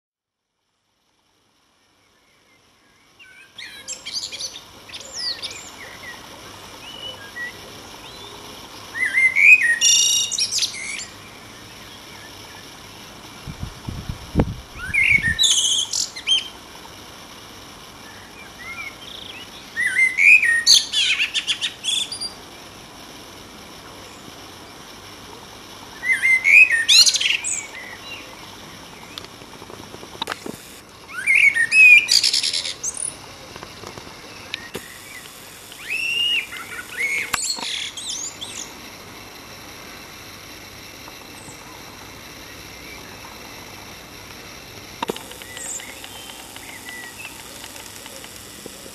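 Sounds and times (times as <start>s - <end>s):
blackbird singing: 3.0s - 6.2s, 18.1s - 22.4s, 31.1s - 33.1s, 34.4s - 38.7s, 45.2s - 48.3s.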